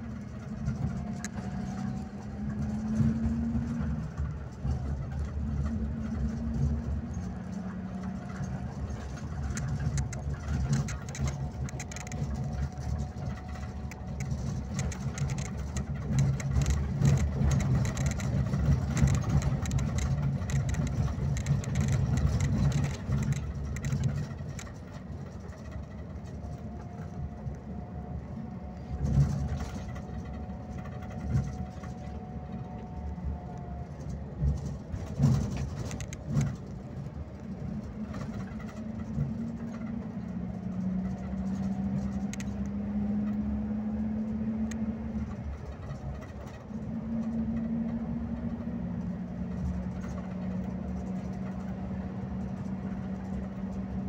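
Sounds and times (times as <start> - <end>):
coach engine droning: 0.0 - 54.0
road noise: 0.0 - 54.0
knocks and rattles: 0.2 - 27.6, 33.9 - 42.7.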